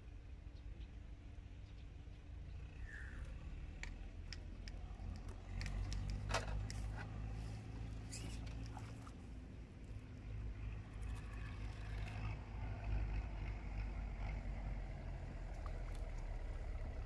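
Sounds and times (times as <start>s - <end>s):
low steady rumble: 0.0s - 17.0s
fishing rod and reel clicks: 3.1s - 7.2s.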